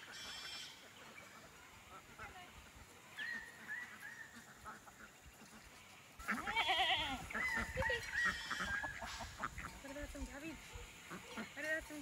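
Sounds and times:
goat bleating: 0:06.2 - 0:08.8.

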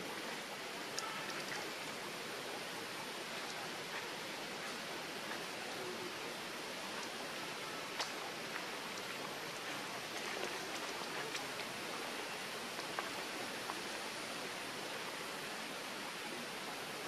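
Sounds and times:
hissing forest ambience: 0:00.0 - 0:17.0
faint clicks: 0:00.9 - 0:01.8.

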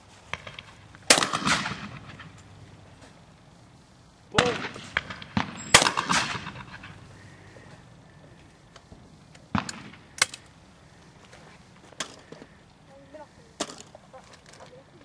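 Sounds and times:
shotgun metallic clicks: 0:08.7 - 0:10.6.

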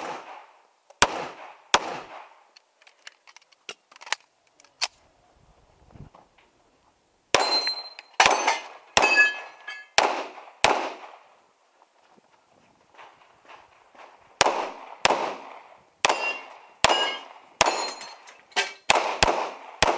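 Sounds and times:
pistol shots with echo: 0:00.0 - 0:02.4, 0:07.3 - 0:11.3, 0:14.0 - 0:18.2, 0:18.8 - 0:19.9.

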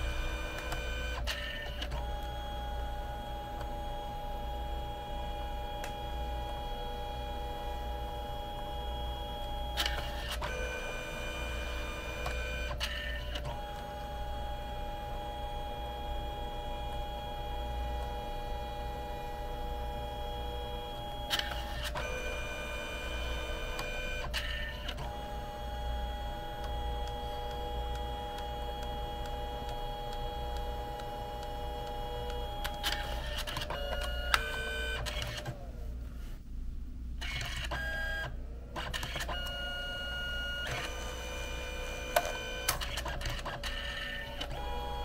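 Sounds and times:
printer feed motor whining: 0:00.0 - 0:35.8, 0:37.2 - 0:45.0
printer click: 0:42.0 - 0:44.9.

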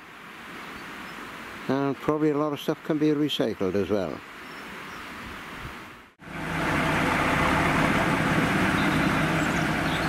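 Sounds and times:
faint outdoor background: 0:00.0 - 0:10.0
diesel locomotive engines droning: 0:06.2 - 0:10.0.

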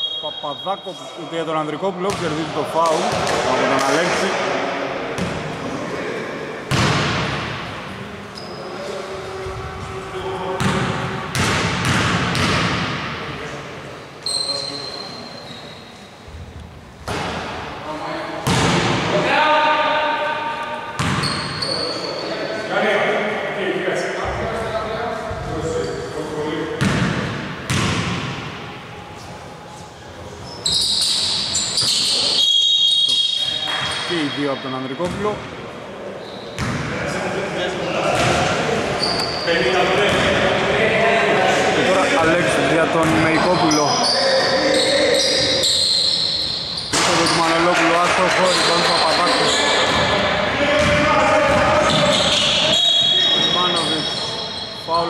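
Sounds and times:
sneakers squeaking: 0:06.7 - 0:13.2, 0:13.9 - 0:17.6, 0:20.4 - 0:22.5, 0:24.2 - 0:35.5, 0:36.1 - 0:36.9, 0:38.1 - 0:40.3, 0:43.0 - 0:55.0
basketball bouncing on wooden court: 0:10.6 - 0:13.0, 0:21.0 - 0:21.5, 0:26.8 - 0:28.4, 0:50.8 - 0:52.4.

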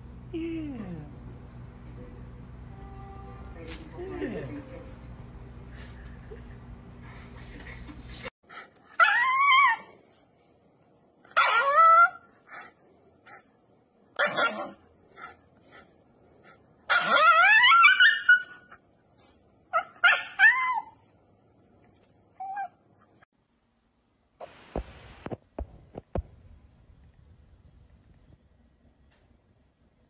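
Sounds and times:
dog screaming and yelping: 0:08.9 - 0:10.0, 0:11.3 - 0:12.3, 0:14.2 - 0:14.8, 0:16.9 - 0:18.8, 0:19.7 - 0:21.0.

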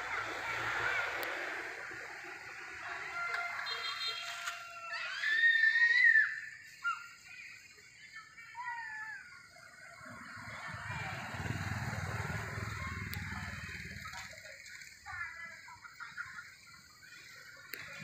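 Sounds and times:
high whistled calls: 0:00.0 - 0:18.0
low vehicle rumble: 0:09.4 - 0:16.0.

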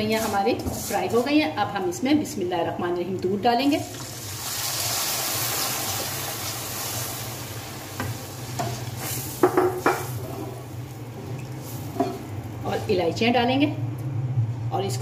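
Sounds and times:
milk sizzling in hot pan: 0:03.8 - 0:12.3.

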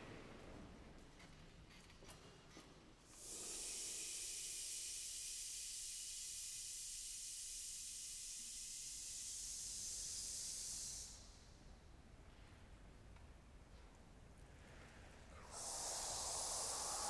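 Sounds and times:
steady high hiss: 0:03.1 - 0:12.1, 0:14.7 - 0:17.0.

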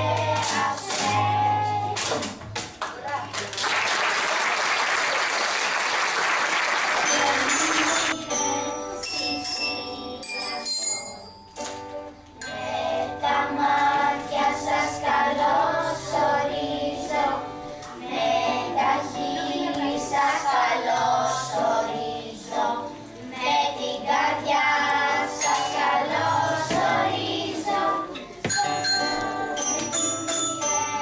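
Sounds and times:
children singing: 0:00.0 - 0:02.2, 0:07.0 - 0:08.6, 0:12.4 - 0:31.0
acoustic guitar: 0:00.0 - 0:02.9, 0:07.0 - 0:31.0
glockenspiels struck with mallets: 0:28.4 - 0:31.0.

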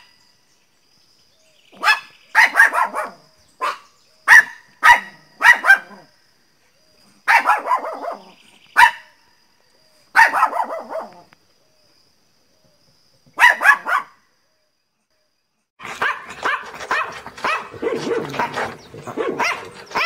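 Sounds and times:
small dog barking: 0:01.8 - 0:06.1, 0:07.2 - 0:09.2, 0:10.1 - 0:11.3, 0:13.4 - 0:14.2, 0:15.8 - 0:20.0.

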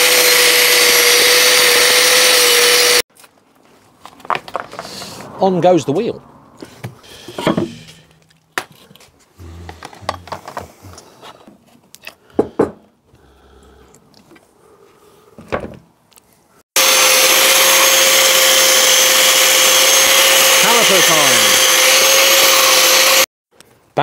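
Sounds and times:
angle grinder whine: 0:00.0 - 0:03.0, 0:16.8 - 0:23.3.

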